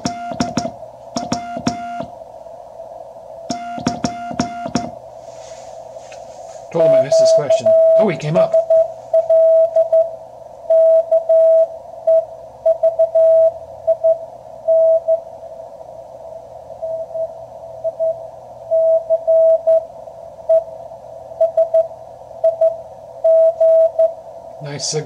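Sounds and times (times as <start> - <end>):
morse code tone: 0.0 - 2.1, 3.5 - 5.0, 6.7 - 10.1, 10.7 - 14.1.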